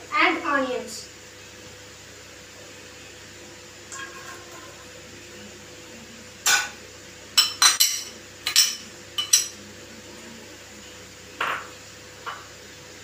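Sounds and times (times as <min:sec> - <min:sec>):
bowl clinking on frying pan: 0:06.4 - 0:06.8, 0:07.4 - 0:09.6.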